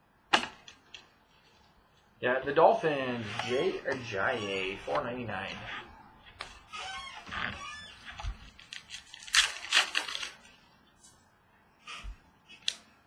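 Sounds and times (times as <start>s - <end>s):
plastic foil rustling: 8.4s - 11.1s.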